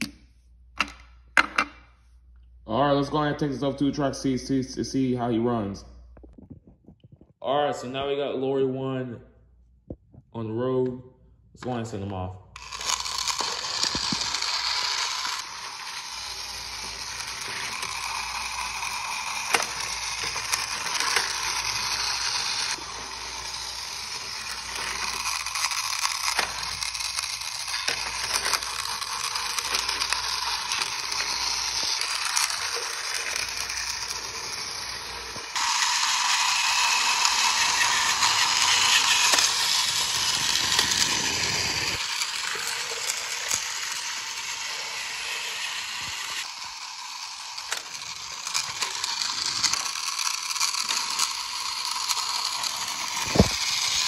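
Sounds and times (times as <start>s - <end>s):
toy lorry electric motor and gears: 12.6s - 54.0s.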